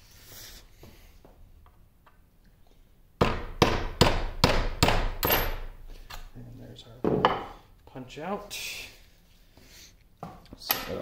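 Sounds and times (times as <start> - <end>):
hammer striking pin punch: 3.2 - 5.7.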